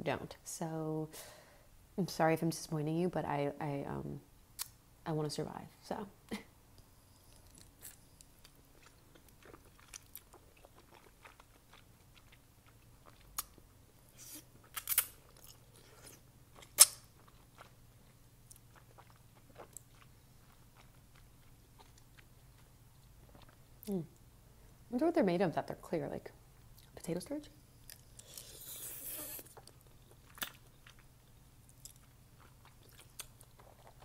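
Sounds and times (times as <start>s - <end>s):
wet chewing of noodles: 7.1s - 23.9s, 27.8s - 34.0s.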